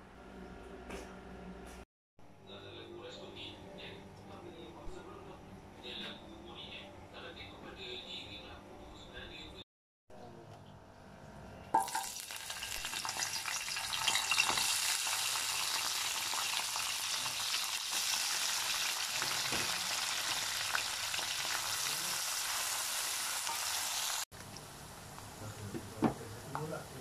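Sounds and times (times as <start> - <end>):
food sizzling in hot oil: 11.8 - 24.3.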